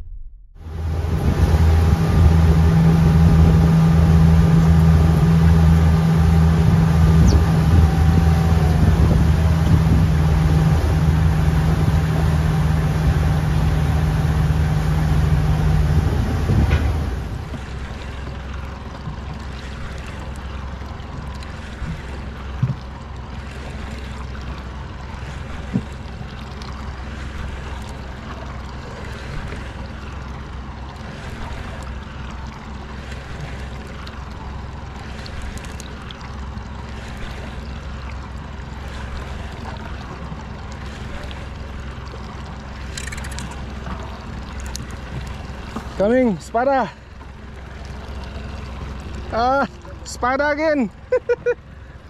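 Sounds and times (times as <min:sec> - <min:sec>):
wind noise: 0:00.0 - 0:13.9, 0:15.2 - 0:17.6
boat engine running: 0:00.0 - 0:52.0
water wash: 0:00.6 - 0:52.0.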